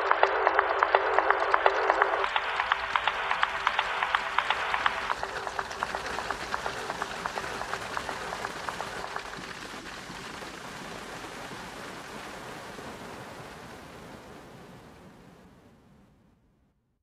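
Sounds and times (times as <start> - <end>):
fast even ticking: 0.0 - 10.0.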